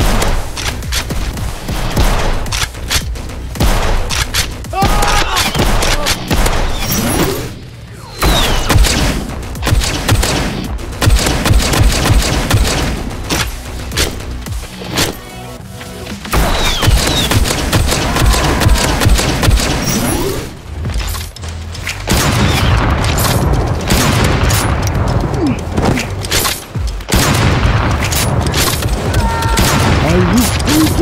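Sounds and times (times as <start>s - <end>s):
background music: 0.0s - 31.0s
blaster shots cracking and booming: 5.5s - 7.6s, 8.2s - 13.2s, 22.1s - 25.1s, 27.1s - 31.0s.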